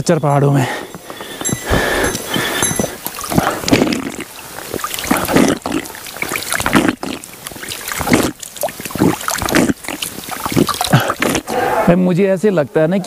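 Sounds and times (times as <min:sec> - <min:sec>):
water trickling: 0:01.2 - 0:11.5
hand splashing pond water: 0:01.6 - 0:11.5.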